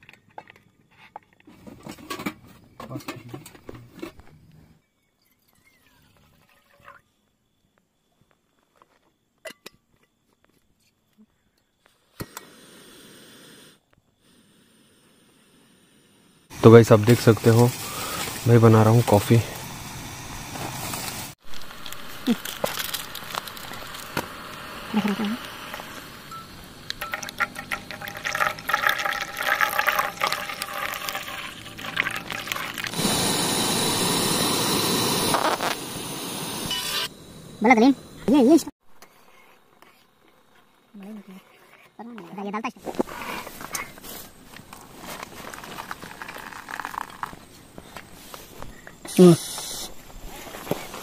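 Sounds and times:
gas hissing: 12.1s - 38.5s, 46.1s - 51.0s
milk pouring and splashing: 27.0s - 33.0s.

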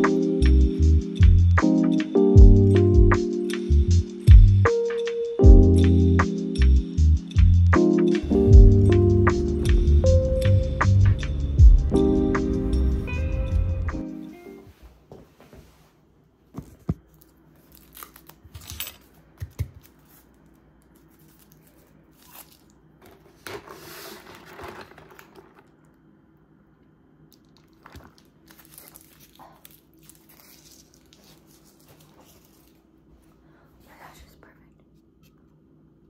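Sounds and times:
straw stirring ice in cup: 23.4s - 25.7s.

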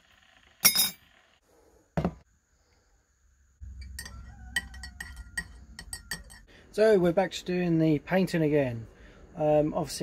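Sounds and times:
teaspoon clinking against mug: 3.8s - 6.5s.

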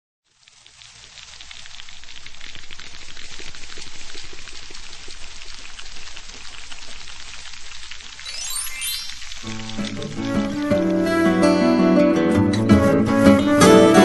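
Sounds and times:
dense patter like rain: 0.2s - 14.0s
rising chime sweep: 8.2s - 9.5s.

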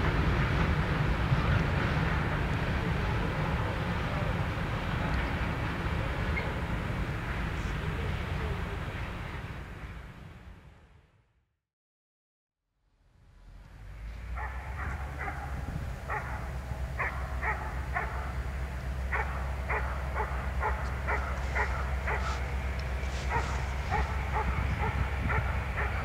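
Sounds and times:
diesel locomotive rumble: 0.0s - 10.9s, 13.0s - 26.0s
dog barking: 14.4s - 18.4s, 19.1s - 22.5s, 23.1s - 26.0s.

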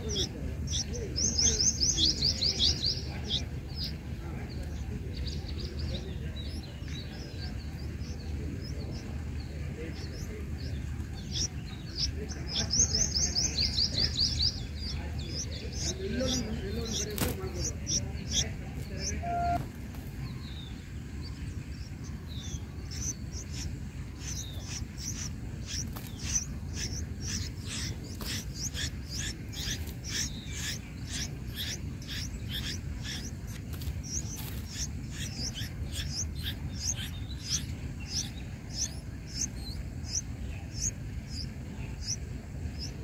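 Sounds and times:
low steady rumble: 0.0s - 43.0s
nestling birds chirping: 0.0s - 43.0s.

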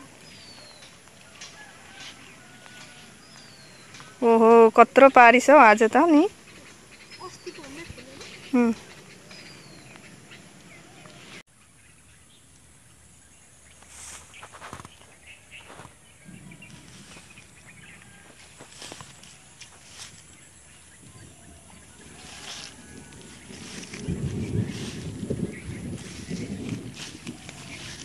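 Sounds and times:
footsteps on grass and gravel: 0.0s - 4.4s, 13.6s - 28.0s
faint rustles: 13.7s - 28.0s.

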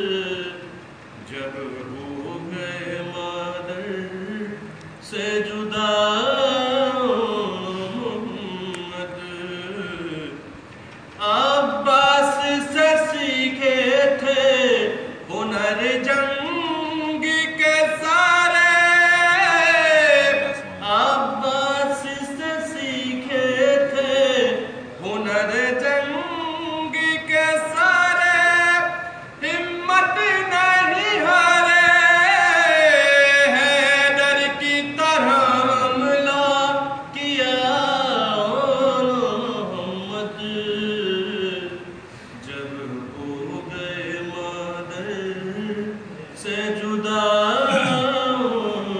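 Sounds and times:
man chanting a lament: 42.4s - 48.9s.

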